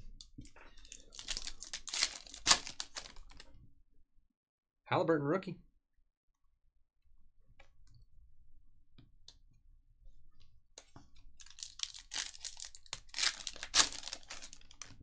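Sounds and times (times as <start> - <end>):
foil wrapper tearing and crinkling: 0.9 - 3.4, 11.4 - 15.0.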